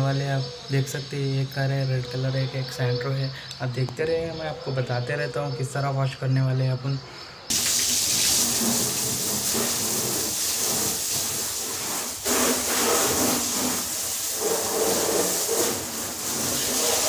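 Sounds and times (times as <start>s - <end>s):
hose water spraying on car: 7.5s - 17.0s.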